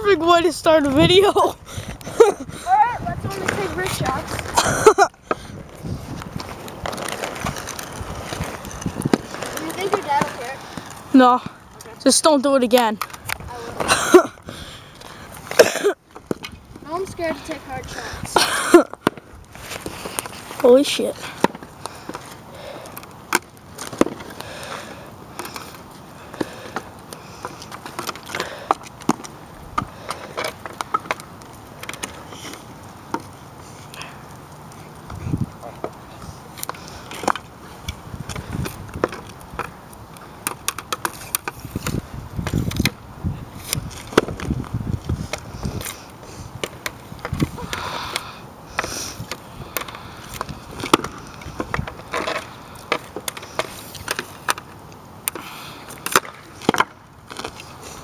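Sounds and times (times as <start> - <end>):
hockey stick tapping balls and pucks: 2.0 - 14.0, 15.0 - 34.0, 35.0 - 43.0, 43.6 - 57.8
hockey stick hitting pucks: 3.3 - 4.5, 6.4 - 11.0, 18.3 - 22.3, 23.3 - 24.4, 40.4 - 43.0, 43.7 - 44.5, 50.8 - 54.7, 55.3 - 57.7.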